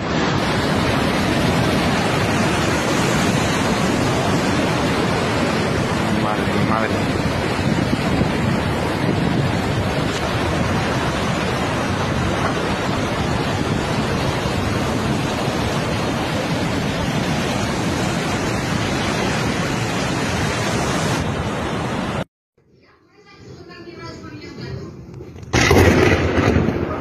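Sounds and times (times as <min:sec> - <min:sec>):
wind buffeting microphone: 0:00.0 - 0:22.2
rough sea surf: 0:00.0 - 0:22.3
storm wind: 0:00.0 - 0:22.3, 0:23.5 - 0:27.0.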